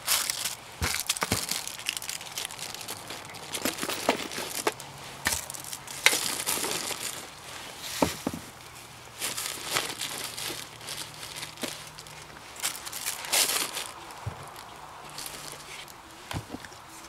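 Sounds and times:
plastic packaging crinkling: 0.0s - 7.8s, 9.1s - 16.3s.

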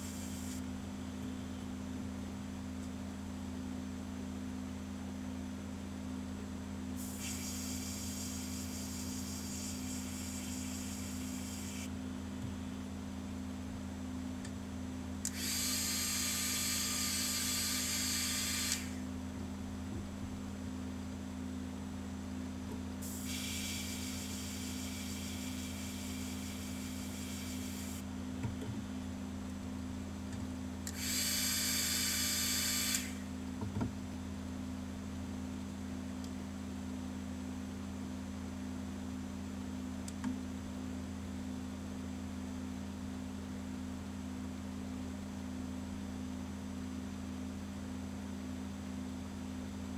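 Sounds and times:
steady low hum: 0.0s - 49.9s
airbrush spraying hiss: 7.0s - 11.9s, 23.0s - 28.0s.

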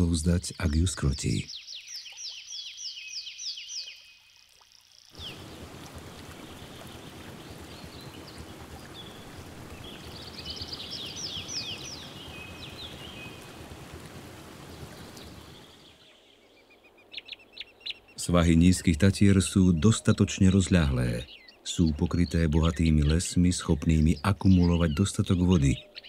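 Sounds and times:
birds chirping: 0.0s - 4.2s, 5.2s - 26.0s
stream flowing: 3.8s - 17.0s.

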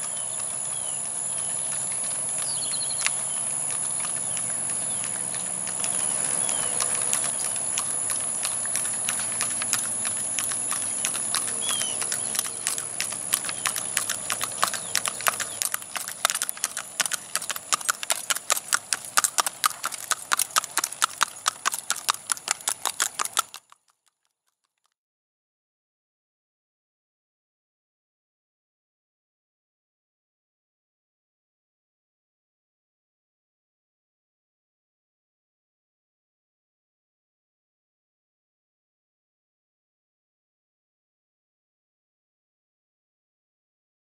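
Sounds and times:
hooves clip-clopping on pavement: 0.0s - 24.7s.

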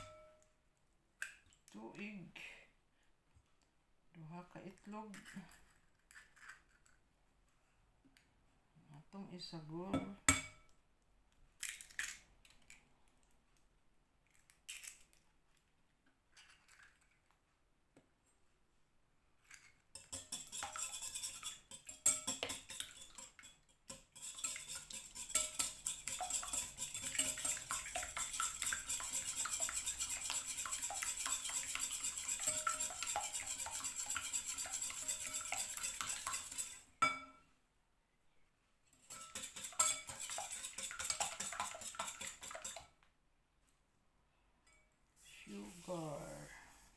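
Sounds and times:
whisk beating eggs in glass bowl: 20.0s - 36.9s, 39.1s - 42.9s.

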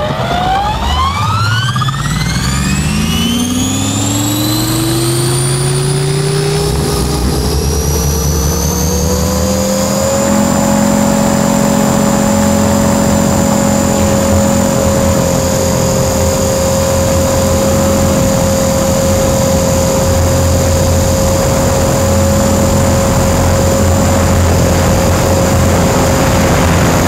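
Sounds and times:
electric motor whine: 0.0s - 27.0s
rush of air: 14.1s - 27.0s.

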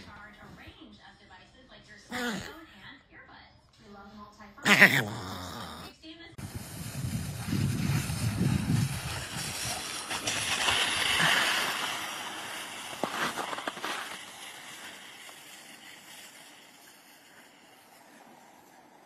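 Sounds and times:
board sliding over snow: 6.4s - 19.0s.

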